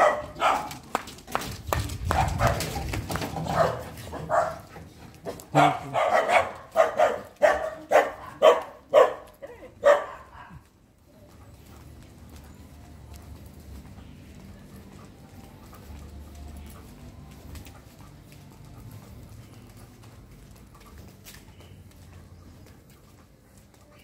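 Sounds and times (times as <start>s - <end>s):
dog barking: 0.0s - 0.8s, 2.1s - 2.8s, 3.4s - 4.7s, 5.3s - 10.6s.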